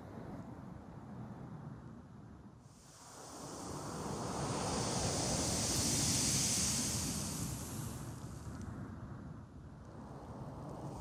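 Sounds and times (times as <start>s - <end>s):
hiss of blowing sand: 2.7s - 8.5s.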